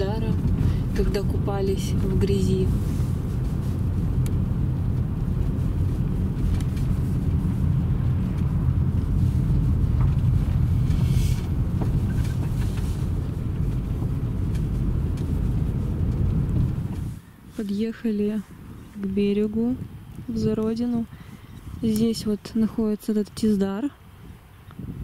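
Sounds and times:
car engine and tyre rumble: 0:00.0 - 0:25.0
brief hiss: 0:10.9 - 0:11.5.

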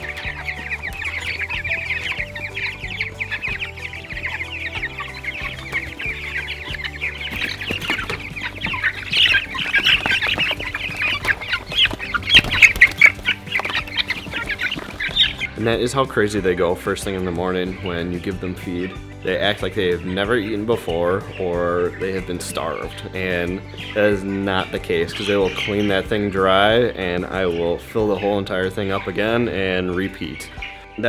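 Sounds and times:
birds scratching at feeder: 0:00.0 - 0:15.5
chicks peeping loudly: 0:00.0 - 0:31.0.

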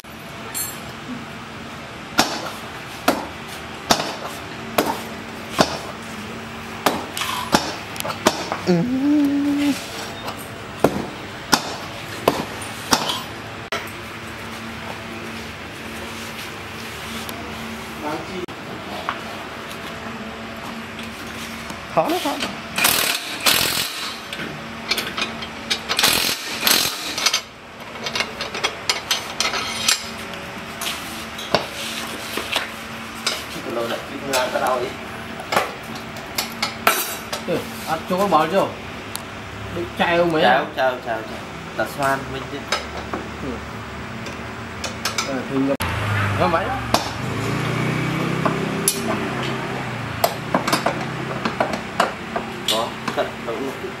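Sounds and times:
steel rod clinking and scraping: 0:27.0 - 0:30.2.

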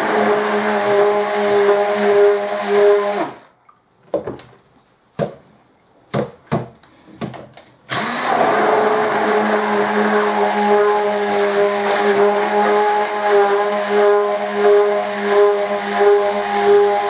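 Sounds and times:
stick blender motor hum: 0:00.0 - 0:03.4, 0:07.9 - 0:17.0.

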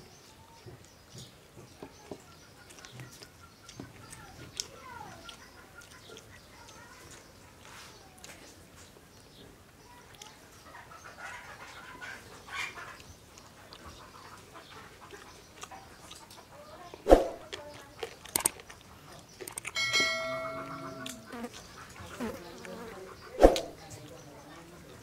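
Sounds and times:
man chewing and smacking lips: 0:02.2 - 0:08.4, 0:12.8 - 0:16.5, 0:17.5 - 0:19.8
steady pitched call: 0:19.8 - 0:21.4.

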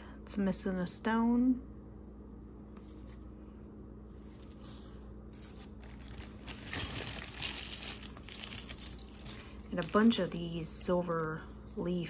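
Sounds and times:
steady low hum: 0:00.0 - 0:12.0
jewelry clinking: 0:04.2 - 0:11.4.

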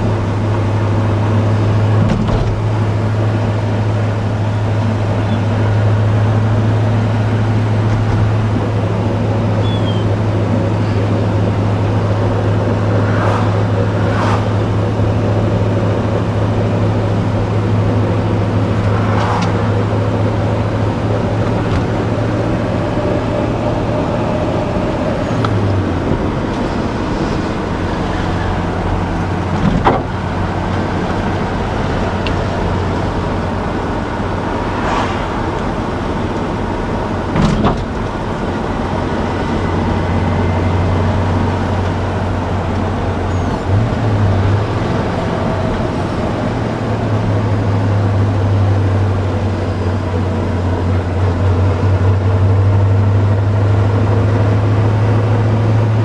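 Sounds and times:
car engine running: 0:00.0 - 0:56.0.

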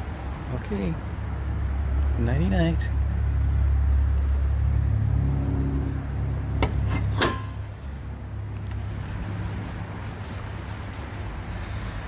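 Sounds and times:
steady low rumble: 0:00.2 - 0:12.0.

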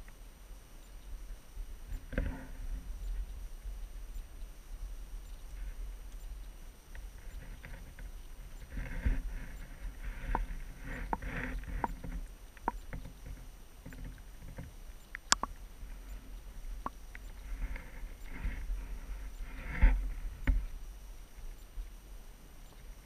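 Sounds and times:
soft rushing swells: 0:00.1 - 0:23.0
muffled underwater rumble: 0:07.1 - 0:12.3, 0:15.4 - 0:21.1
sharp underwater clicks: 0:10.3 - 0:15.6.

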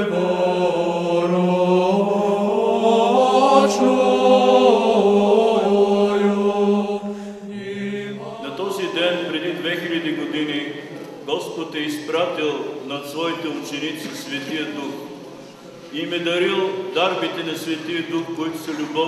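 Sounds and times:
voices chanting over held note: 0:00.0 - 0:11.1.

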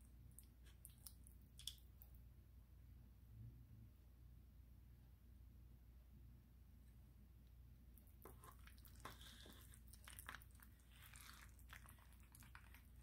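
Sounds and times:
spoon squishing through food: 0:00.0 - 0:02.1, 0:07.9 - 0:13.0.

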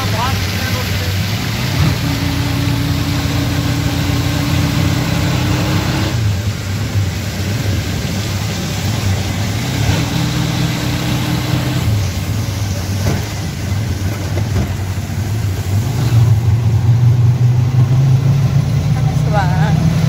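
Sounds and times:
small engine running: 0:00.0 - 0:13.4
rain on wet road: 0:00.0 - 0:20.0
held whining tone: 0:01.5 - 0:06.6.

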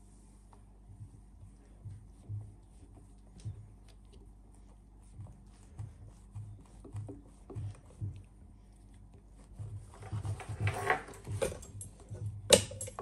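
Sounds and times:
awl knocking on leather: 0:05.2 - 0:08.5.

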